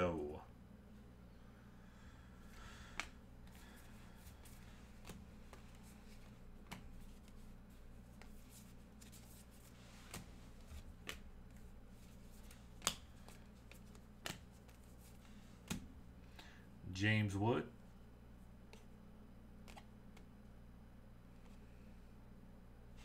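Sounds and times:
faint low hum: 0:00.0 - 0:23.0
baseball cards clicking and sliding: 0:02.4 - 0:16.5, 0:18.5 - 0:20.4, 0:21.3 - 0:21.9.

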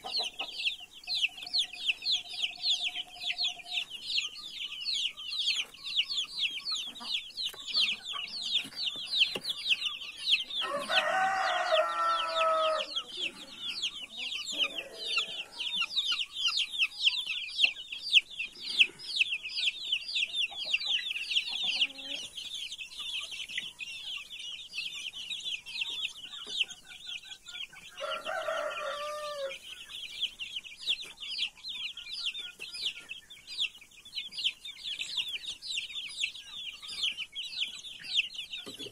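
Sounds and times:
chicks peeping: 0:00.0 - 0:38.9
rooster crowing: 0:10.6 - 0:13.3, 0:14.4 - 0:15.8, 0:28.0 - 0:29.6.

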